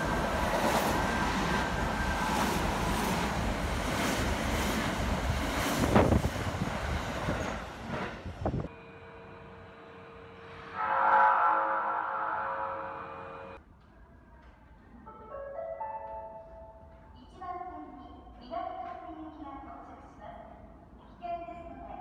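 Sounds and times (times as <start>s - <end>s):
train passing at speed: 0.0s - 13.6s.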